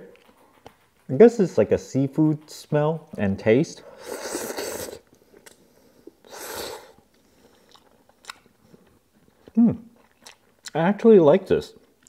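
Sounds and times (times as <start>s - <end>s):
quiet chewing with mouth clicks: 0.0s - 12.0s
person slurping noodles: 3.8s - 5.1s, 6.2s - 7.0s.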